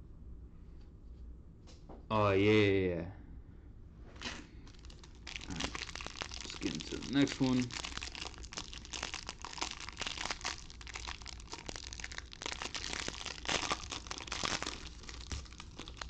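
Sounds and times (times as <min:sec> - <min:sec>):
plastic wrapper crinkling and tearing: 0:04.2 - 0:16.0.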